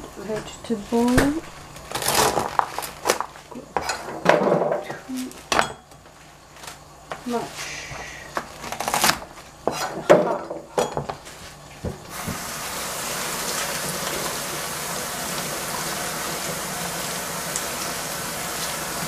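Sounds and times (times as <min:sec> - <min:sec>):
kitchen tap running: 0:11.8 - 0:19.0.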